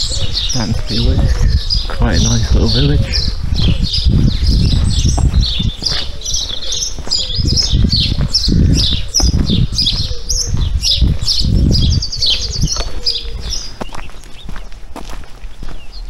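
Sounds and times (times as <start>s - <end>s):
songbirds singing: 0.0s - 16.0s
low thumps: 0.6s - 5.9s.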